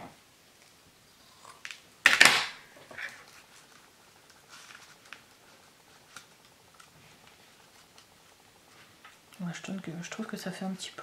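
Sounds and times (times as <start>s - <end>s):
paper rustling: 2.9s - 9.2s.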